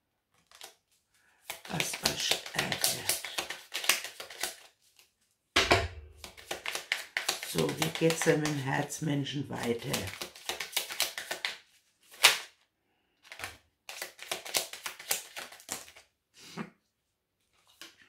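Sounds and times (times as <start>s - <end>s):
cards being shuffled: 0.3s - 5.2s, 6.2s - 12.6s, 13.2s - 16.1s, 17.4s - 18.0s.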